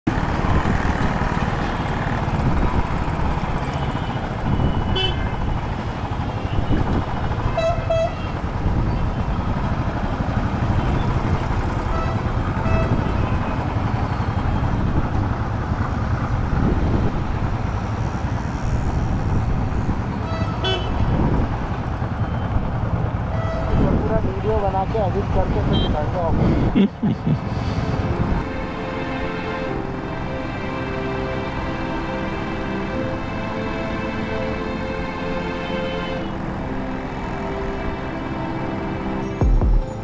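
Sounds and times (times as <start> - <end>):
city traffic: 0.0 - 40.0
vehicle horns honking: 3.7 - 5.7, 6.3 - 9.1, 10.8 - 14.2, 20.2 - 21.2, 23.3 - 24.0, 25.6 - 26.8, 34.7 - 36.4.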